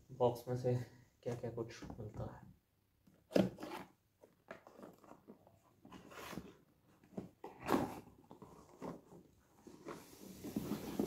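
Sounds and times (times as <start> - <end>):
cardboard box rustling and scraping: 5.9 - 11.0.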